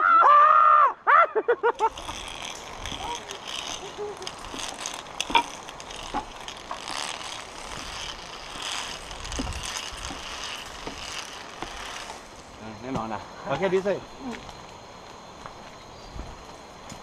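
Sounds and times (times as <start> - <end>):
metal carabiners clicking on cable: 1.8 - 12.4.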